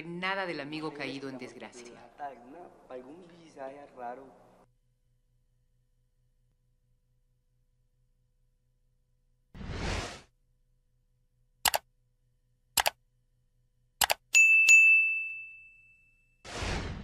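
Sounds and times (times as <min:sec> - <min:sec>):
whoosh: 0:09.6 - 0:10.3, 0:16.5 - 0:17.0
mouse clicks: 0:11.6 - 0:11.8, 0:12.8 - 0:13.0, 0:14.0 - 0:14.2
notification bell ding: 0:14.4 - 0:16.4.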